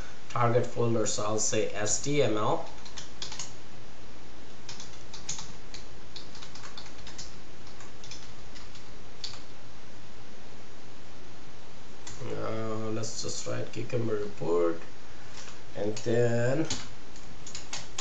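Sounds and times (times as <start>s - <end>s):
low hum and hiss: 0.0s - 18.0s
typing on computer keyboard: 2.6s - 3.5s, 4.7s - 9.4s, 16.6s - 18.0s.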